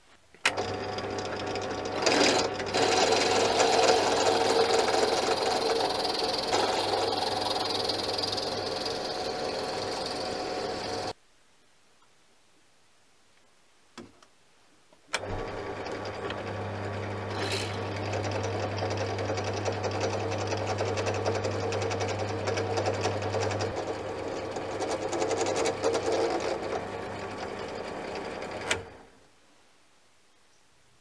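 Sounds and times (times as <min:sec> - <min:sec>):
spindle motor humming: 0:00.5 - 0:11.2, 0:15.2 - 0:29.0.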